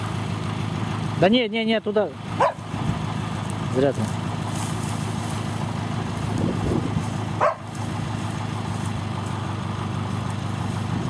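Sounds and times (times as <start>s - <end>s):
truck engine idling: 0.0s - 11.0s
dog barking or yelping: 2.4s - 2.6s, 7.4s - 7.7s.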